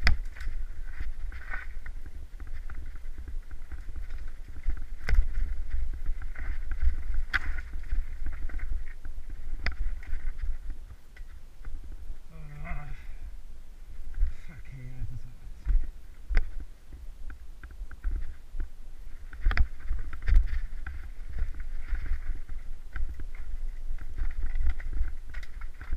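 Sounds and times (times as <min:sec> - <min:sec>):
bike knocking on rocks: 0:00.0 - 0:11.4
wind rumble on microphone: 0:00.0 - 0:25.9.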